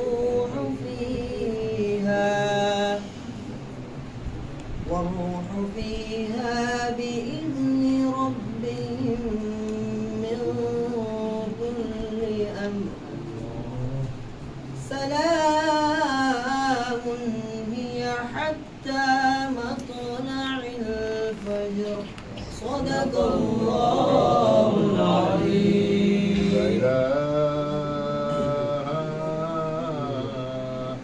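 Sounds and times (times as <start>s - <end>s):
men chanting: 14.8s - 31.0s.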